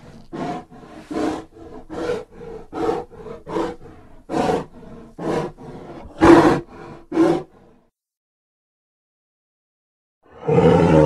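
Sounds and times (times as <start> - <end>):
dinosaur roar growling calls: 0.2 - 7.5, 10.3 - 11.0.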